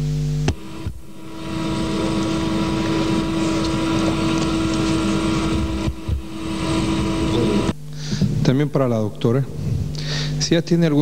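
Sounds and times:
sound system hum: 0:00.0 - 0:11.0
steady rushing noise: 0:00.4 - 0:08.8.

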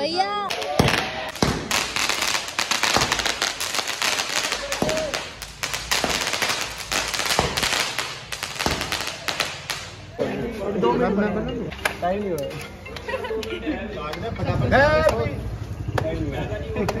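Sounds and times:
firecrackers popping and banging: 0:00.4 - 0:10.1.

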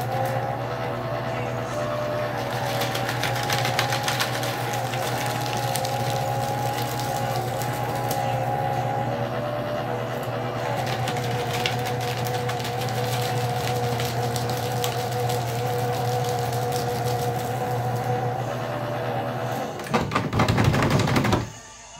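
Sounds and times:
paper shredder motor hum: 0:00.0 - 0:21.4
paper crackling: 0:02.0 - 0:08.5, 0:10.6 - 0:18.3
knocking and rustling: 0:19.9 - 0:21.5.

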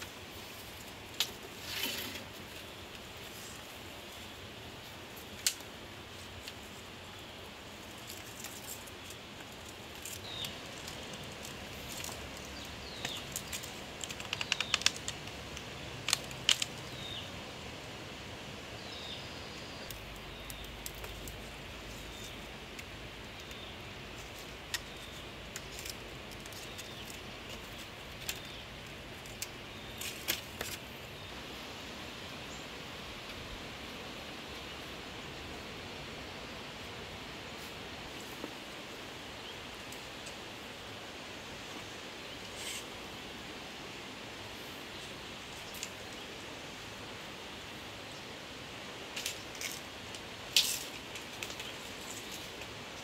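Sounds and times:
outdoor hiss: 0:00.0 - 0:53.0
bamboo strips clicking: 0:05.3 - 0:05.7, 0:08.0 - 0:17.2, 0:19.9 - 0:30.9, 0:49.2 - 0:53.0.

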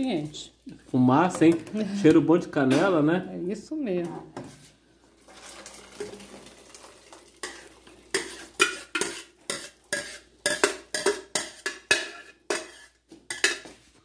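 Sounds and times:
metal utensil scraping a pot: 0:07.4 - 0:13.8.

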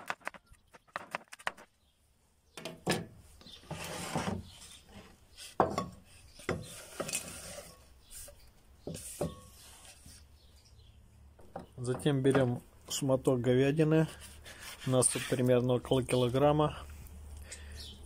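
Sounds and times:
rubbing and scraping: 0:03.4 - 0:10.4, 0:13.8 - 0:16.3.

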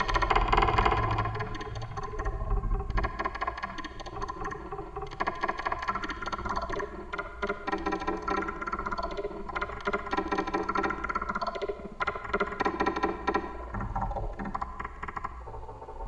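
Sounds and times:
low rumble: 0:00.0 - 0:03.1
dense crackling clattering noise: 0:00.0 - 0:16.0.

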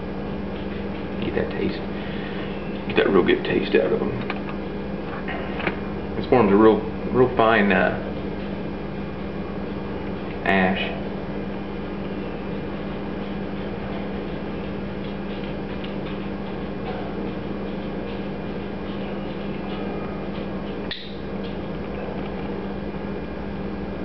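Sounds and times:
low electrical hum and hiss: 0:00.0 - 0:24.0
sharp click: 0:20.8 - 0:21.6.

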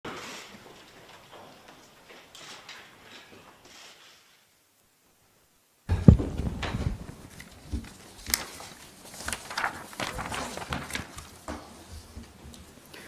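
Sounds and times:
loud thump: 0:05.9 - 0:07.1
paper shuffling: 0:06.4 - 0:13.0.

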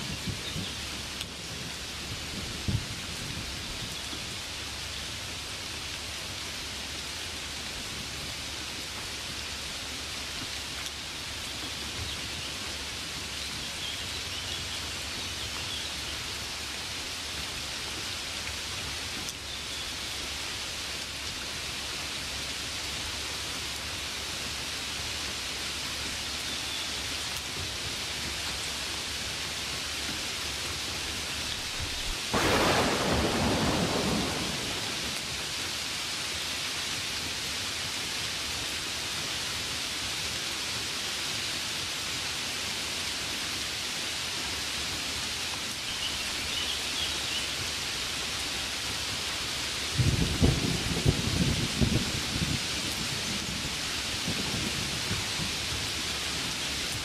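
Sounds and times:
rain falling: 0:00.0 - 0:57.0
sudden burst of noise: 0:32.3 - 0:35.2.

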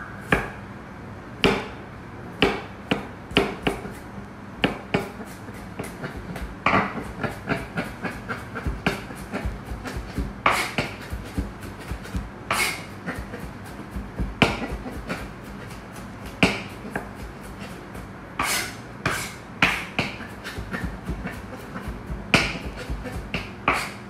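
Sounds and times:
knife chopping on cutting board: 0:02.4 - 0:04.0, 0:04.6 - 0:17.6, 0:18.4 - 0:24.0.

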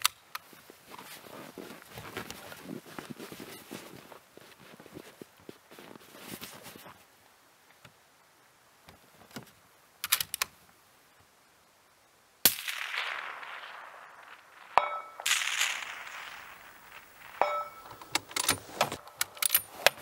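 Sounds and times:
rifle shot echoing: 0:12.5 - 0:18.8
metallic ping: 0:14.8 - 0:16.4, 0:17.2 - 0:18.2.

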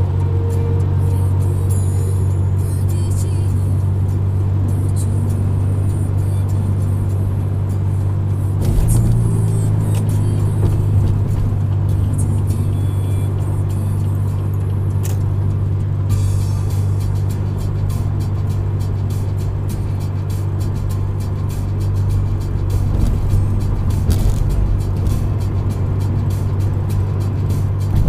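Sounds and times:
car road and engine drone: 0:00.0 - 0:28.0
car jolt: 0:10.1 - 0:11.9.

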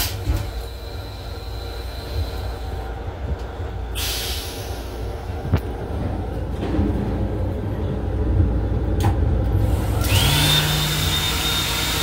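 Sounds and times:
moving train rumble: 0:00.0 - 0:12.0
faucet motor whine: 0:09.9 - 0:12.0.

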